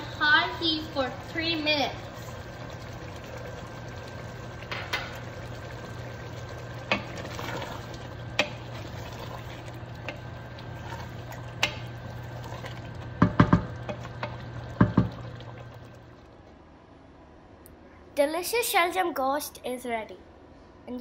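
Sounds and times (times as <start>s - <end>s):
curry bubbling and sizzling: 0.0s - 16.5s
wooden spoon stirring: 2.1s - 16.1s
spoon knocking against pot: 13.2s - 15.2s.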